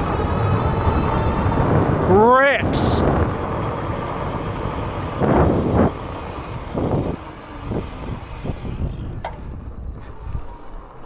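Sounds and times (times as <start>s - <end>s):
tyres rolling over rough ground: 0.0s - 11.0s
wind on microphone: 0.0s - 11.0s.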